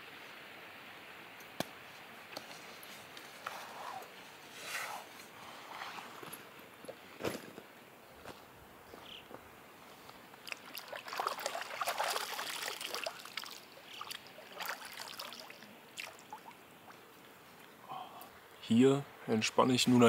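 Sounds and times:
water splashing: 10.3s - 17.2s
water dripping: 10.4s - 18.3s.

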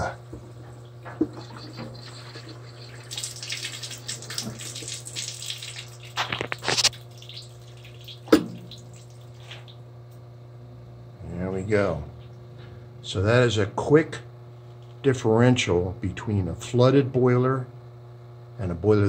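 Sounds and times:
steady low hum: 0.0s - 19.0s
water rushing from drain valve: 0.8s - 9.8s.

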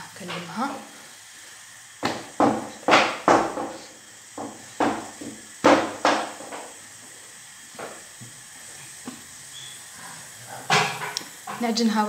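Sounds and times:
dough thumping on stone countertop: 2.0s - 6.7s.

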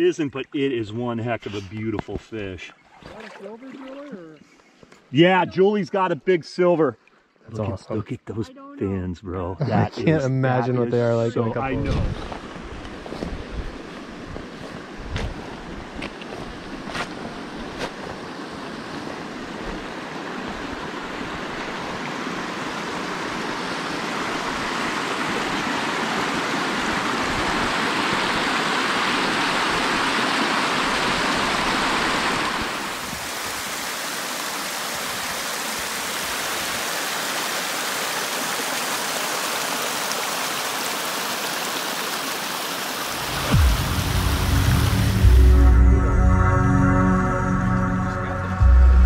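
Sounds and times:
river water washing on shore: 2.7s - 4.3s, 11.9s - 45.6s
water rushing over stones: 13.8s - 45.5s
low thump: 43.3s - 45.8s.

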